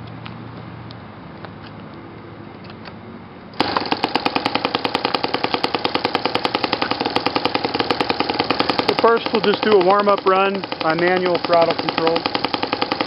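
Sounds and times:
model glow engine running: 3.6s - 13.0s.

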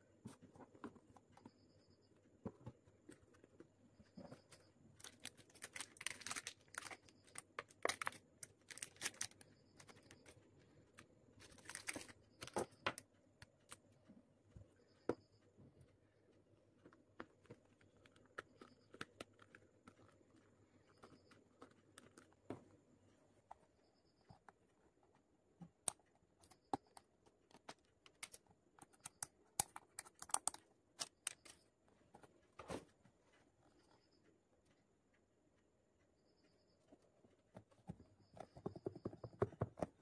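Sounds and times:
paper and card rustling: 4.2s - 10.4s, 11.4s - 12.7s.

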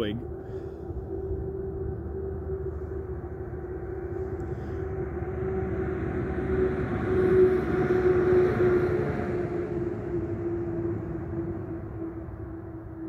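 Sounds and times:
engine-like drone: 0.0s - 13.0s.

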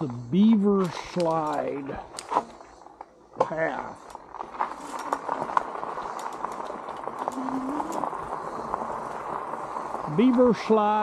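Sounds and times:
small clicks and ticks: 0.8s - 3.1s, 3.7s - 11.0s
bike tyres rolling on gravel: 2.7s - 11.0s.

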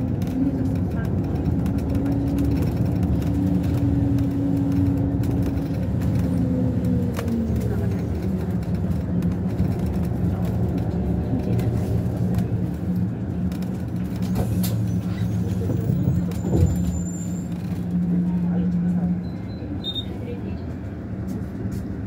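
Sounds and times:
faint clicks and rattles: 0.0s - 15.0s
vehicle engine and road noise: 0.0s - 22.0s.

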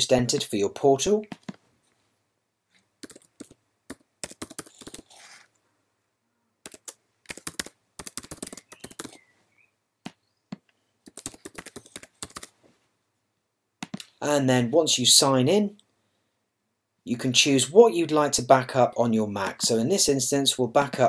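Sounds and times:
typing on computer keyboard: 3.0s - 5.1s, 6.6s - 9.2s, 11.0s - 12.5s.

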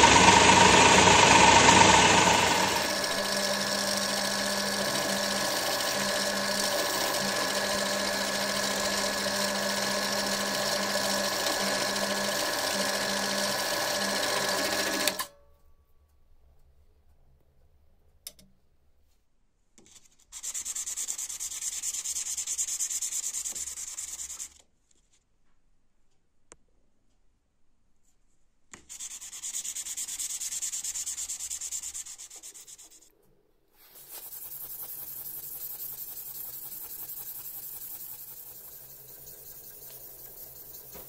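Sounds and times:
drill press running: 0.0s - 15.3s, 34.0s - 41.0s
metal rubbed on sandpaper: 19.8s - 24.6s, 28.8s - 33.1s, 33.8s - 41.0s.

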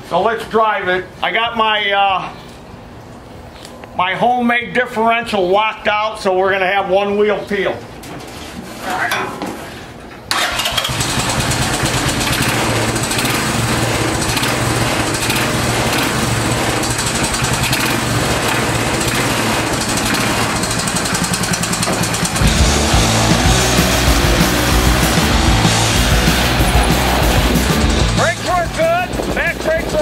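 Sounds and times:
small engine running: 10.4s - 30.0s.

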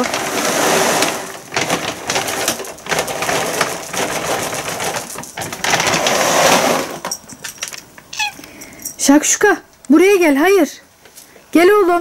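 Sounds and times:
plastic bag crinkling: 0.0s - 8.8s
kibble rattling onto concrete: 0.0s - 9.4s.

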